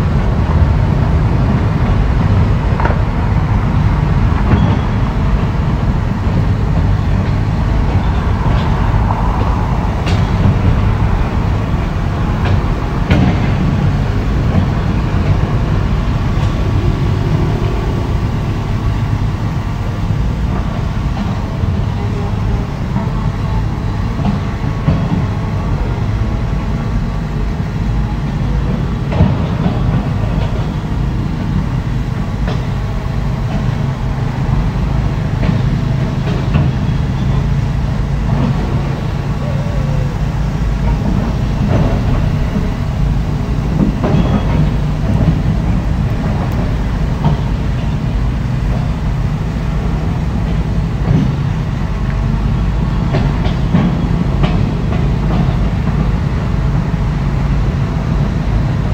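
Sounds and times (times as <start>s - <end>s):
heavy diesel engine running: 0.0s - 58.9s
machinery knocks and clanks: 0.0s - 58.9s.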